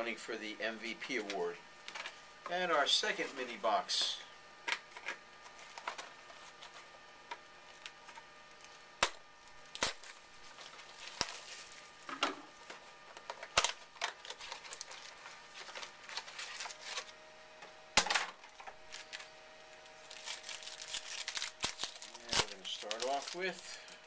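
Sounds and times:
wrapper crinkling and rustling: 9.4 - 17.2, 18.4 - 24.0.

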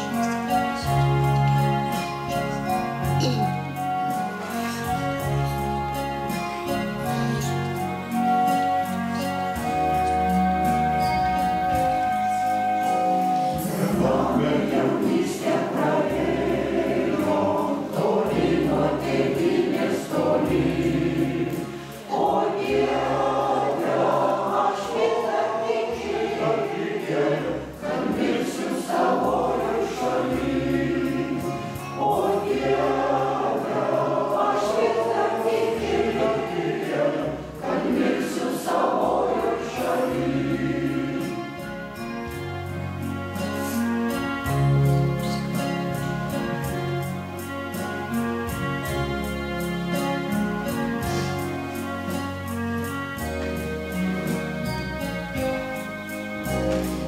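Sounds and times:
choir singing a hymn: 0.0 - 57.0
electronic keyboard bass notes: 39.0 - 57.0.

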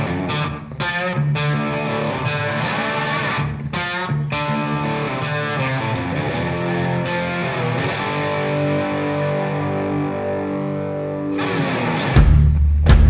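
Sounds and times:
electric guitar music: 0.0 - 13.0.

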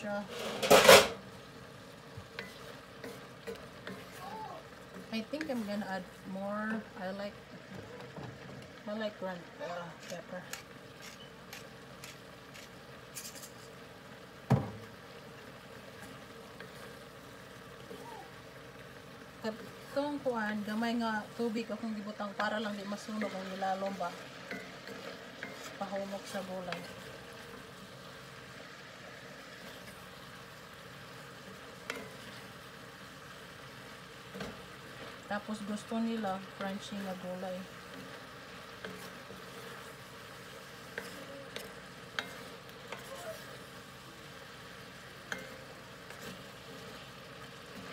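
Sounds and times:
vegetables sizzling in a skillet: 0.0 - 47.9
spatula stirring: 1.8 - 6.9, 10.0 - 13.8, 15.5 - 28.6, 29.2 - 47.9
sharp knock on skillet: 14.5 - 14.8.

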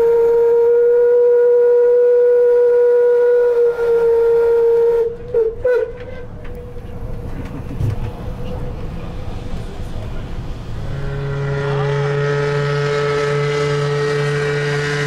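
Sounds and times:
steam whistle blasts: 0.0 - 6.3, 10.8 - 15.0.

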